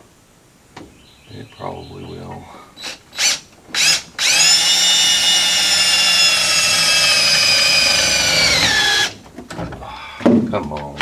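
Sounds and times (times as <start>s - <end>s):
electric drill whining: 2.8s - 9.2s.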